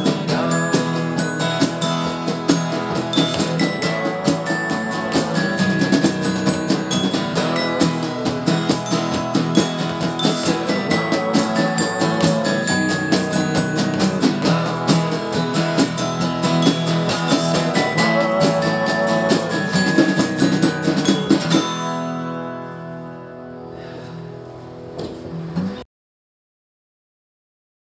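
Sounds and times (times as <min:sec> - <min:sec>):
light percussion: 0:00.0 - 0:22.4
strummed acoustic guitars: 0:00.0 - 0:25.8.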